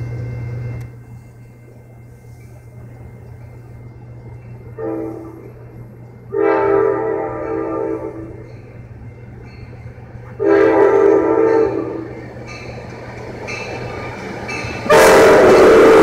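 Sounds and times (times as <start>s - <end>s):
steady low hum: 0.0s - 10.4s
train air horn blasts: 4.7s - 5.6s, 6.3s - 8.4s, 10.3s - 12.2s, 14.9s - 16.0s.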